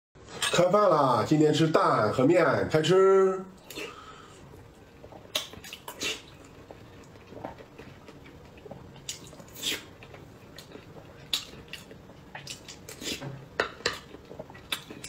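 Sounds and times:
wet chewing: 5.0s - 15.0s.

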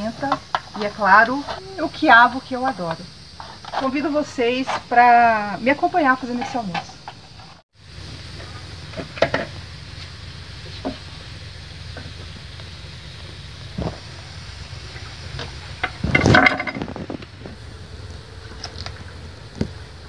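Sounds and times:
low hum: 7.8s - 20.0s.

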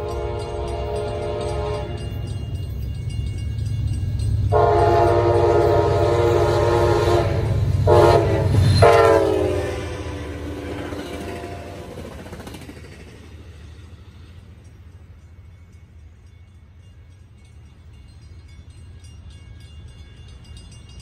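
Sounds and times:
train horn blasts: 0.0s - 2.2s, 4.5s - 11.9s
locomotive engine and wheels rumbling: 0.0s - 21.0s.

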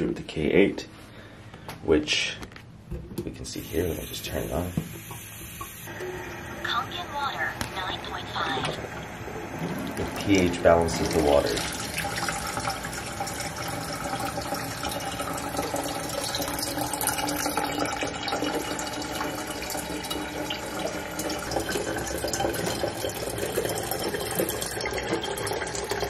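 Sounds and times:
water running into a kettle: 3.4s - 6.6s, 8.7s - 26.0s.

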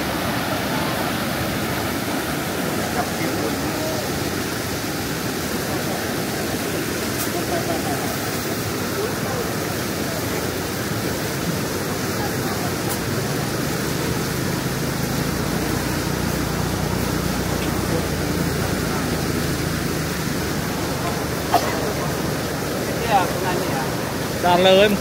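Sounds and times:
water rushing over embankment: 0.0s - 25.0s.

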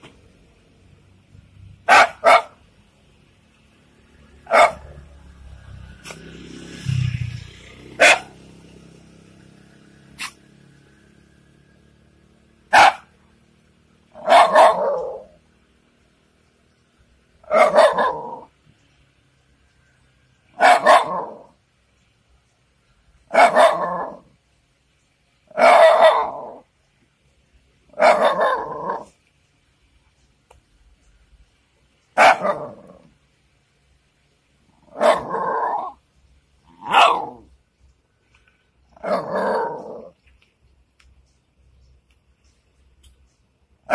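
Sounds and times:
dog barking: 1.8s - 2.6s, 4.4s - 5.0s, 8.0s - 8.4s, 12.7s - 13.2s, 14.1s - 15.4s, 17.4s - 18.5s, 20.6s - 21.6s, 23.3s - 24.2s, 25.5s - 26.6s, 27.9s - 29.1s, 32.2s - 32.9s, 34.9s - 36.0s, 36.8s - 37.4s.

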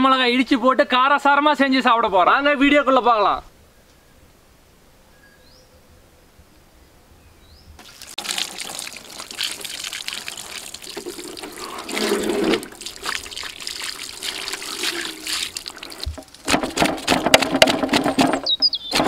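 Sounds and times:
water splashing and trickling: 7.8s - 19.0s.

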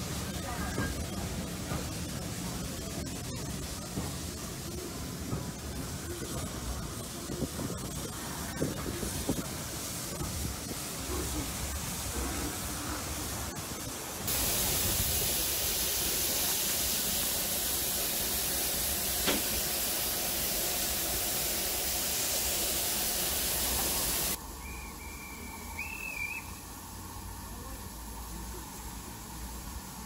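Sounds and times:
steam hissing: 0.0s - 30.0s
high wavering whistle: 24.5s - 26.7s.

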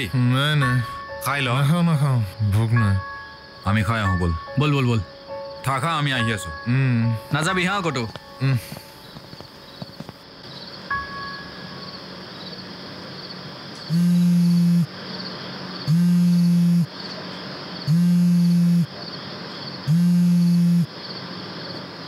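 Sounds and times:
crickets chirping: 0.0s - 22.0s
mobile phone buzzing: 13.9s - 14.9s, 15.9s - 16.9s, 17.9s - 18.9s, 19.9s - 20.9s.

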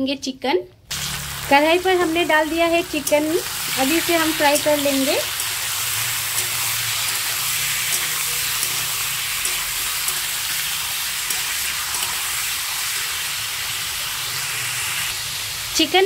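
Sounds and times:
chicken sizzling in hot oil: 0.9s - 16.0s
metal spatula scraping and tapping: 5.3s - 12.2s.

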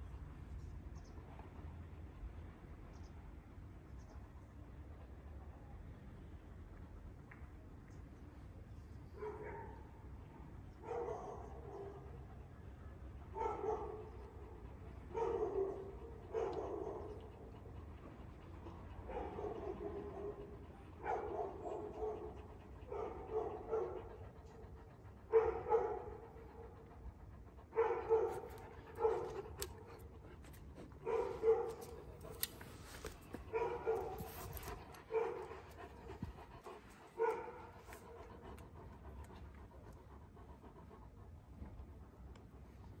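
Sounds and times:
dog panting: 13.4s - 43.0s.

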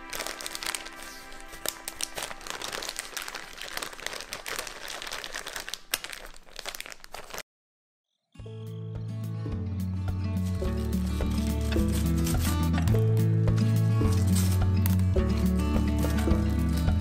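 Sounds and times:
soft background music: 0.0s - 3.9s, 8.4s - 17.0s
plastic bag crinkling: 0.0s - 7.4s, 10.4s - 13.3s, 14.0s - 15.2s.

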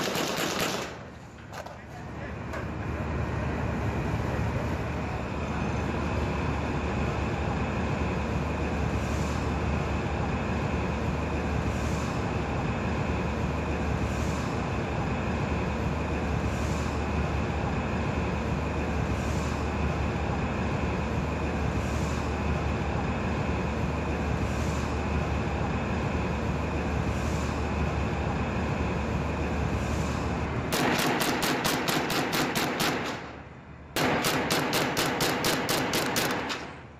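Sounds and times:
automatic gunfire bursts: 0.0s - 1.1s, 30.7s - 33.2s, 34.0s - 36.7s
ship engine drone: 0.0s - 36.9s.

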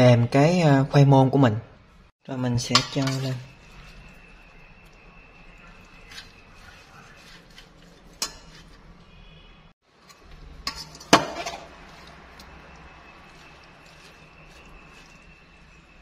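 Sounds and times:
chopsticks clinking on metal bowl: 2.7s - 4.3s, 5.7s - 8.8s, 10.0s - 15.4s.

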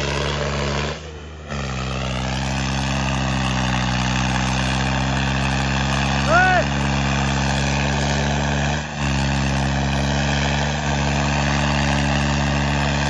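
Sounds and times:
tractor diesel engines pulling hard: 0.0s - 13.0s.

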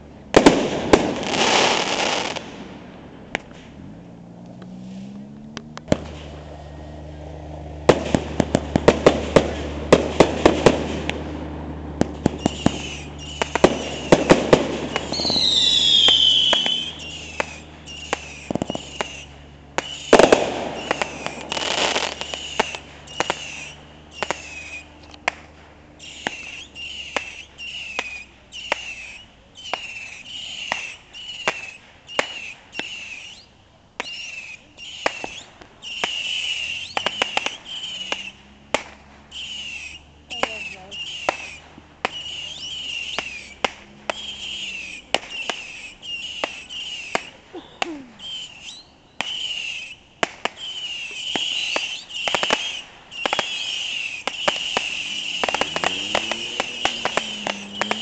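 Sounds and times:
fireworks bangs and crackles: 0.0s - 58.0s
short falling whistles: 12.3s - 14.2s, 14.9s - 25.0s, 26.0s - 38.4s, 39.3s - 58.0s
long falling whistle: 12.4s - 14.1s, 14.9s - 19.3s, 20.8s - 25.0s, 39.3s - 47.4s, 48.1s - 50.0s, 50.6s - 58.0s.

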